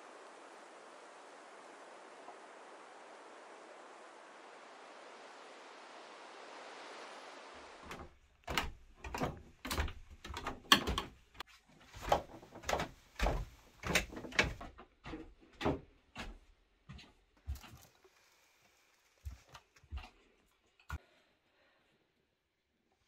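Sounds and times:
outdoor hiss: 0.0 - 8.5, 17.5 - 19.8
bare footsteps on wooden stairs: 7.9 - 17.8.

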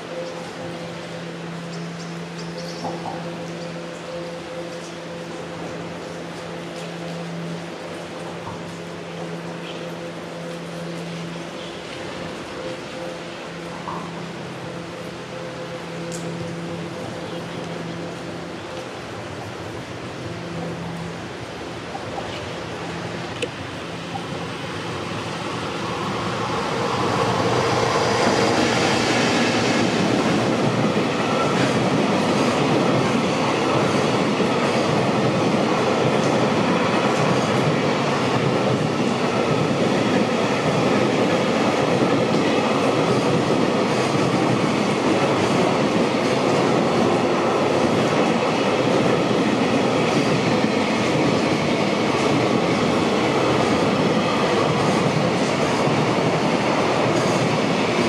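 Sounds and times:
freight train wheels on rails: 0.0 - 58.0.

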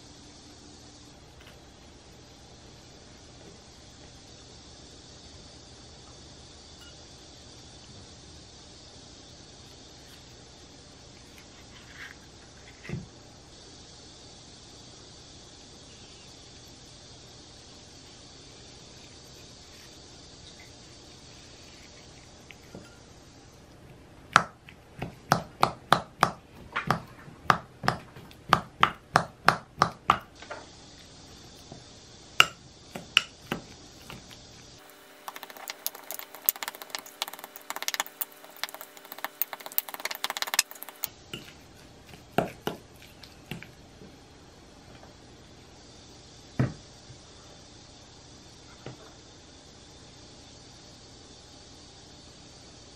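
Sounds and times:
fork tapping glass bowl: 35.3 - 41.5.

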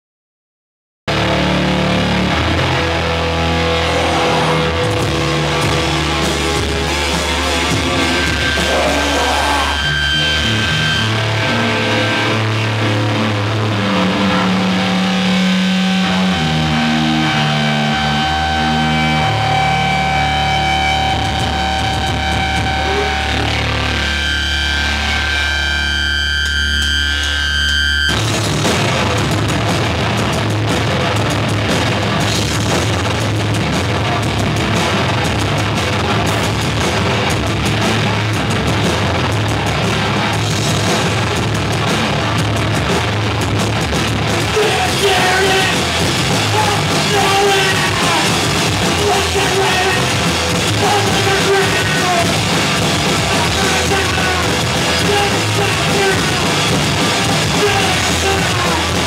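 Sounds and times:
drum kit: 1.1 - 59.0
electric bass: 1.1 - 59.0
electric guitar: 1.1 - 59.0
person singing: 3.6 - 10.5, 44.5 - 52.5, 53.2 - 59.0.

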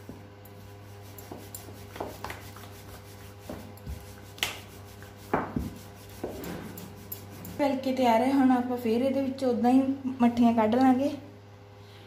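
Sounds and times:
rolling pin rubbing on dough: 0.6 - 7.8
rolling pin knocking on counter: 5.3 - 6.4.

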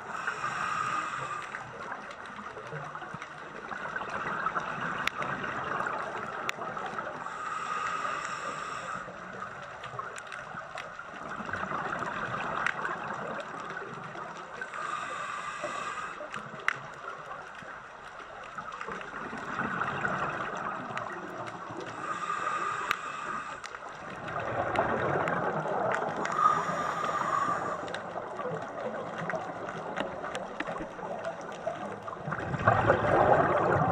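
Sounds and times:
regulator hissing inhale: 0.0 - 1.9, 7.2 - 9.4, 14.6 - 16.5, 21.8 - 24.0, 26.2 - 28.2
exhaled bubbles rushing: 19.0 - 22.4, 24.0 - 33.9.

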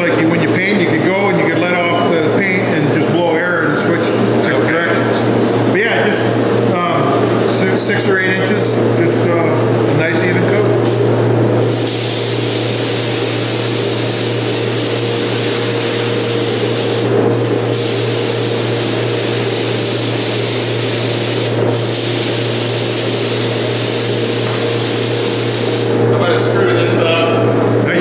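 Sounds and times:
steady low hum: 0.0 - 28.0
paint spray gun hissing: 11.6 - 26.0.

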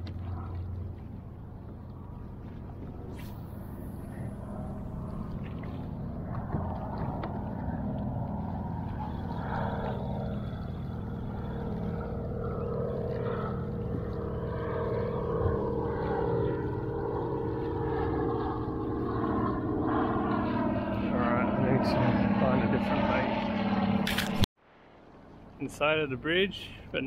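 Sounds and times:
engine drone: 0.0 - 25.4.

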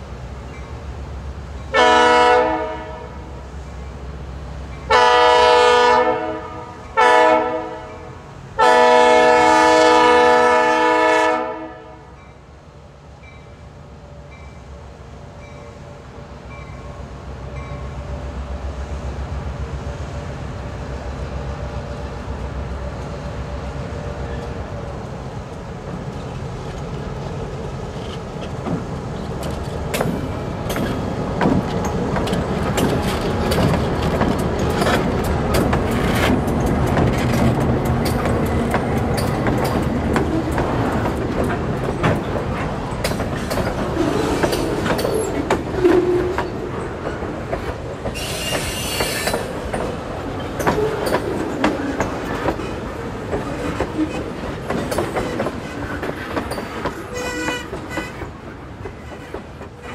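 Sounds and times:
diesel locomotive engines rumbling: 0.0 - 59.9
train wheels clacking: 24.2 - 59.9.

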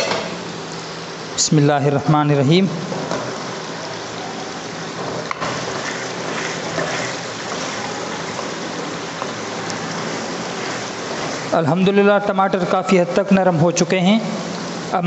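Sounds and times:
sauce sizzling and bubbling: 0.0 - 1.4, 2.3 - 15.0
wooden spoon stirring in pot: 4.6 - 11.7.

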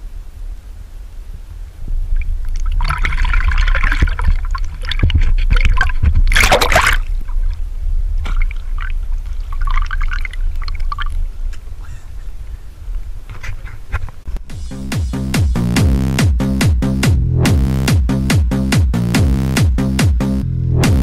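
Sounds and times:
low rumble: 0.0 - 13.3, 16.8 - 17.8
water sloshing and gurgling: 2.0 - 11.5.

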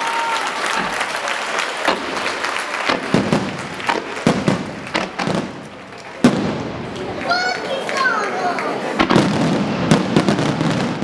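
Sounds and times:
fireworks bangs: 0.0 - 11.0.

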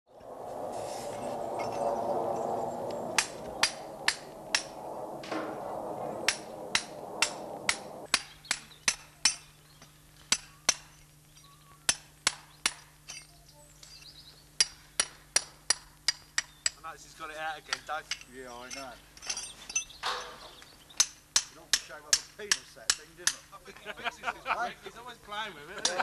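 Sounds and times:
rushing noise: 0.1 - 8.1.

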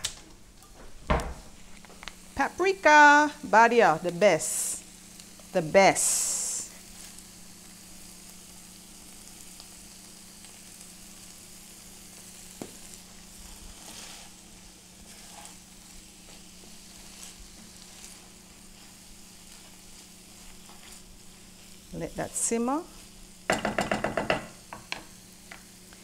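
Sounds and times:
food sizzling in a pot: 1.2 - 26.0.

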